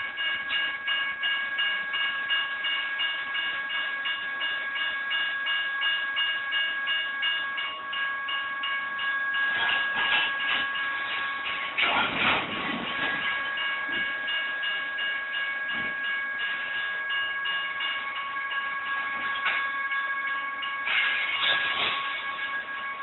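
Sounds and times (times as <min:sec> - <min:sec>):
crossing bells ringing: 0:00.0 - 0:23.0
train wheel clatter: 0:09.4 - 0:20.0, 0:20.6 - 0:23.0.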